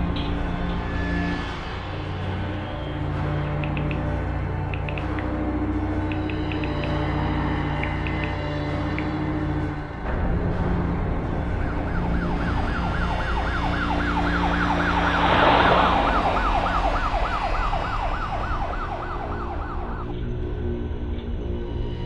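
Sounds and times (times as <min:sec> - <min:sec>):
police siren yelping: 0:11.7 - 0:20.1
rushing noise: 0:13.8 - 0:19.0.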